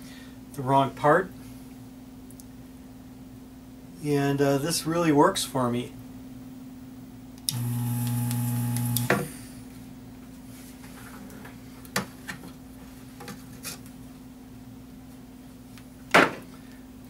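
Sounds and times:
vacuum pump humming: 7.5s - 9.5s.

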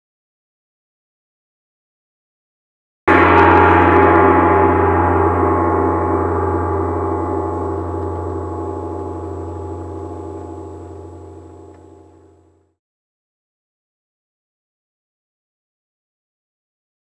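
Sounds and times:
large gong ringing: 3.1s - 12.6s.

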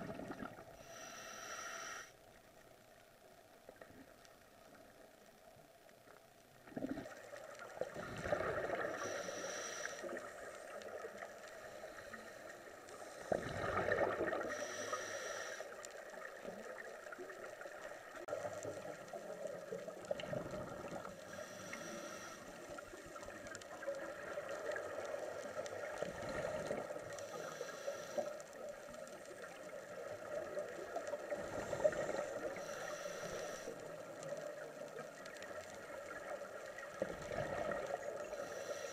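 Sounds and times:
gurgling exhaled bubbles: 0.0s - 0.8s, 6.6s - 9.0s, 13.3s - 14.5s, 19.8s - 21.2s, 25.7s - 27.1s, 36.8s - 38.1s
regulator breathing hiss: 0.8s - 2.4s, 7.9s - 16.6s, 21.2s - 23.2s, 27.0s - 28.7s, 31.3s - 34.4s, 38.2s - 38.9s.

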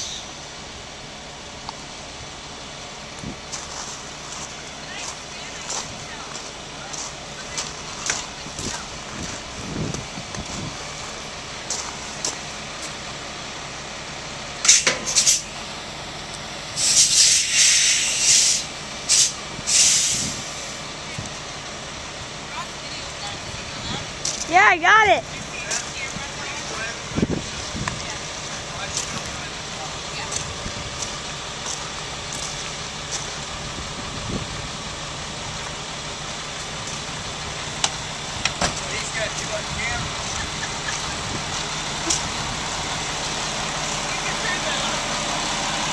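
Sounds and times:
air brakes hissing: 0.0s - 0.5s, 14.6s - 15.6s, 16.7s - 20.8s
engine hum: 0.0s - 45.9s.

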